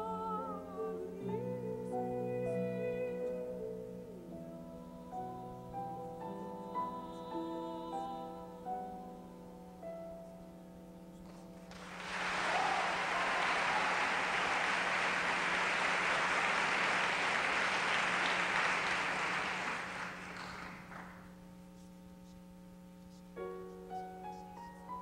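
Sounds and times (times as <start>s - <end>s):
audience applause: 11.7s - 21.2s.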